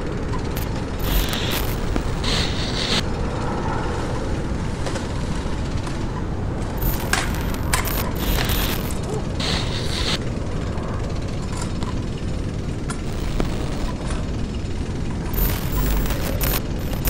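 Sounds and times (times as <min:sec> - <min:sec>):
mechanical clicks and ticks: 0:00.3 - 0:03.0, 0:06.8 - 0:10.2, 0:12.8 - 0:14.2, 0:15.3 - 0:17.0
dense low rumble: 0:00.5 - 0:03.1, 0:06.5 - 0:10.2, 0:12.3 - 0:14.2, 0:15.2 - 0:17.0.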